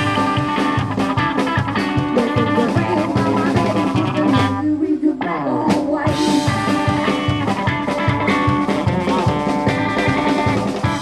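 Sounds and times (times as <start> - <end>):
drum kit: 0.0 - 4.7, 5.7 - 11.0
upright double bass: 0.0 - 4.7
electric guitar: 0.0 - 11.0
rockabilly band playing: 0.0 - 11.0.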